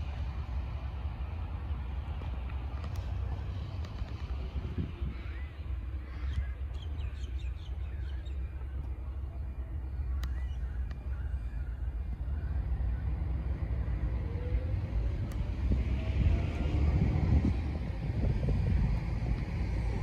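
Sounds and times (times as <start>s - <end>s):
wind rumble on microphone: 0.0s - 9.3s, 10.2s - 20.0s
birds chirping: 1.4s - 15.5s.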